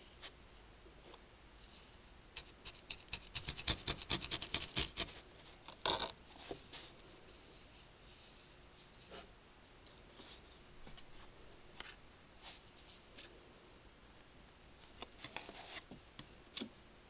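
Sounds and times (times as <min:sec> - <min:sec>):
felting needle jabbing wool: 0:02.4 - 0:05.2.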